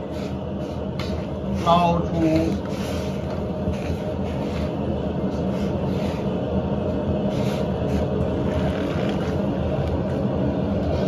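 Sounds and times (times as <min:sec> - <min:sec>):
water boiling and bubbling: 0:02.2 - 0:11.0.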